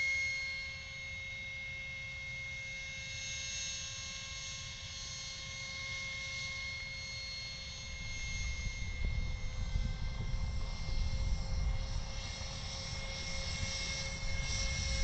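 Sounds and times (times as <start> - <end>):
electric jet fan whining: 5.6 - 15.0.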